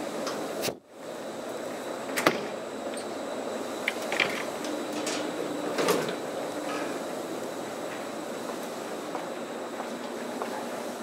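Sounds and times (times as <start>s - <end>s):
elevator hiss and hum: 0.0s - 11.0s
elevator clicks: 3.8s - 7.0s.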